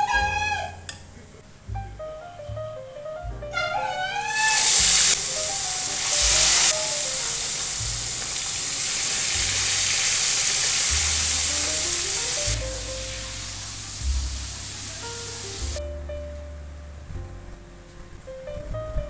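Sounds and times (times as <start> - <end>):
food sizzling in hot oil: 4.3 - 15.8.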